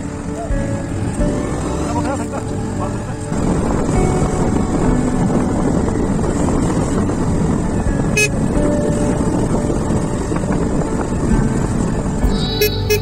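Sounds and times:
wind rushing over microphone: 0.0 - 13.0
short sharp high sound: 12.3 - 13.0.

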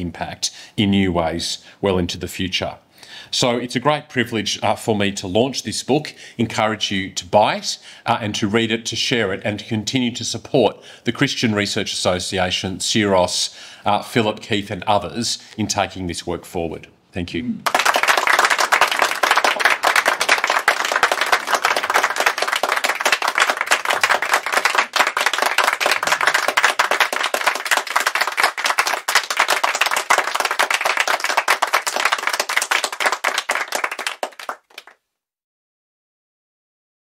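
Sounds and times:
audience applauding: 17.6 - 35.0.

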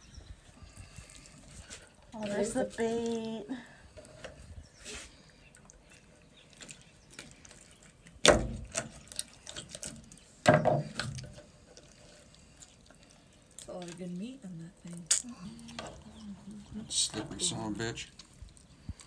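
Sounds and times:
sharp knocks: 8.2 - 8.8.

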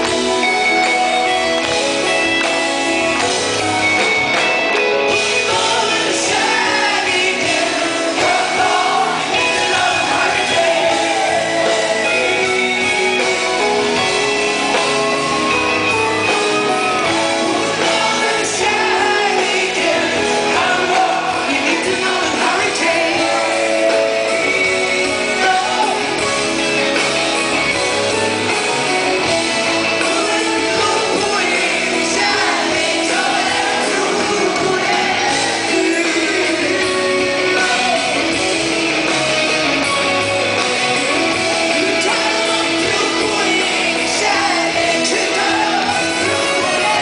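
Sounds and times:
live rock band playing: 0.0 - 47.0
man singing: 5.1 - 15.1, 16.8 - 27.0, 29.2 - 39.6, 41.0 - 47.0.

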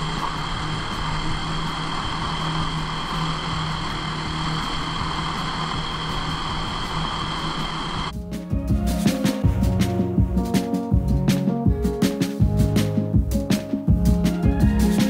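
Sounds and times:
snowmobile engine running: 0.0 - 8.1
music with a beat: 8.1 - 15.0.

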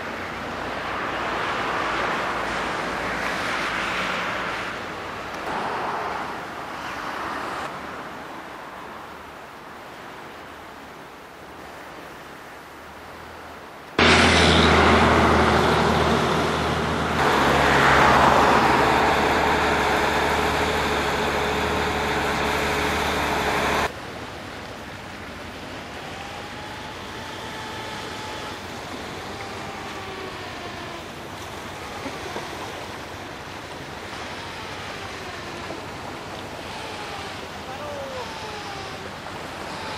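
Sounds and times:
road and wind rush: 0.0 - 26.2
vehicle engine hum: 14.0 - 39.9.

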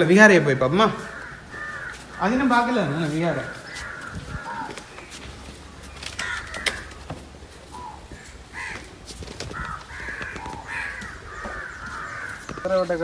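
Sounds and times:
crows cawing: 0.0 - 13.0.

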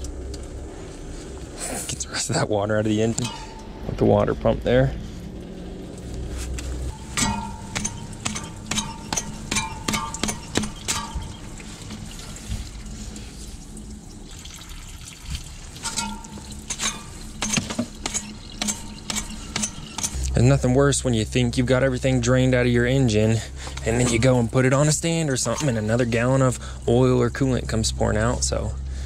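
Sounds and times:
coolant splashing stream: 5.0 - 21.4
drips and splatter ticking: 5.4 - 20.4.

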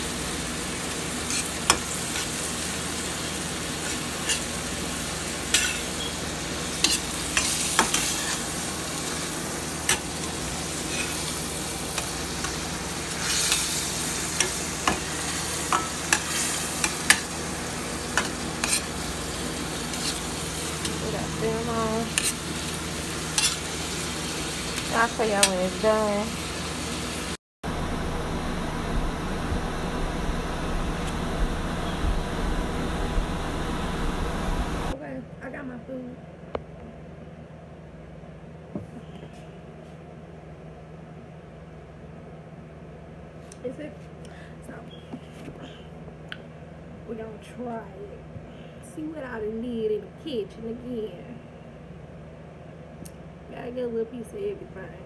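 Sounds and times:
meat sizzling in a skillet: 0.0 - 27.4
metal spatula scraping a pan: 5.5 - 6.1, 6.8 - 8.4, 18.6 - 18.9, 22.1 - 22.4, 23.4 - 23.7.

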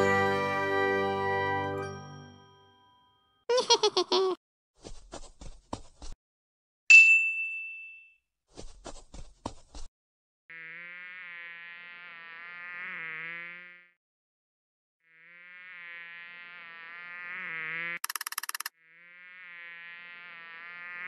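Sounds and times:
mosquito buzzing: 10.5 - 14.0, 15.0 - 21.0
clicks: 18.0 - 18.7.

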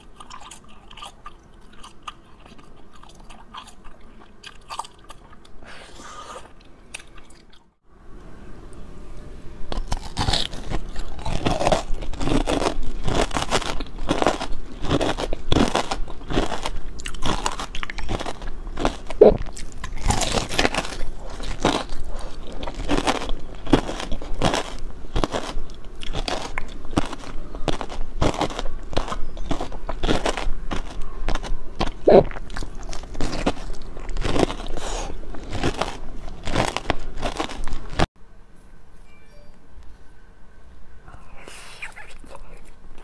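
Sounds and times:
soft chewing: 0.0 - 8.3, 9.7 - 38.1, 41.1 - 43.0
crisp candy crunching: 9.7 - 38.1.

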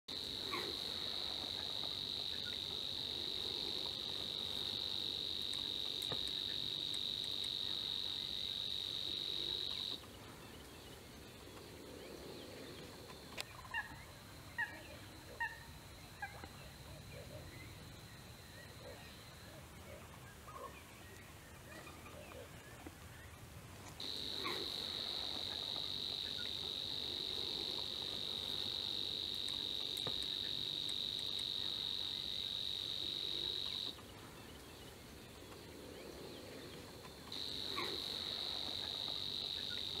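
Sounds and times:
insect buzzing trill: 0.1 - 10.0, 24.0 - 34.0, 37.3 - 40.0.

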